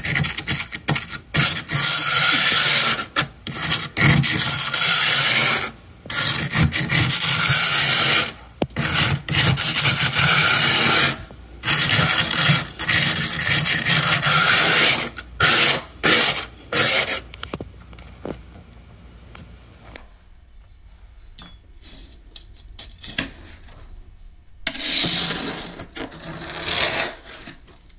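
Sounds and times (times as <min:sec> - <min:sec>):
hand scraping frost in freezer: 0:00.0 - 0:17.3, 0:24.6 - 0:27.9.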